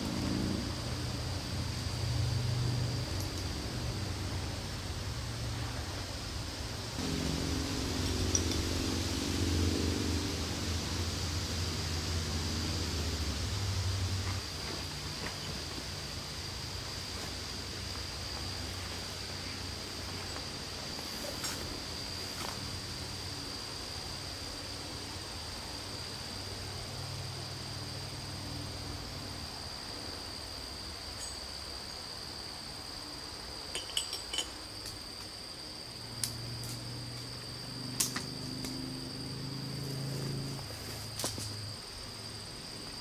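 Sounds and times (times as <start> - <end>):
low hum: 0.0 - 16.8
high-pitched insect drone: 0.0 - 43.0.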